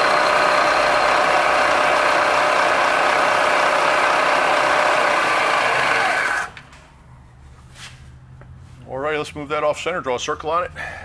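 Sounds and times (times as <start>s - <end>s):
milling machine cutting metal: 0.0s - 6.6s.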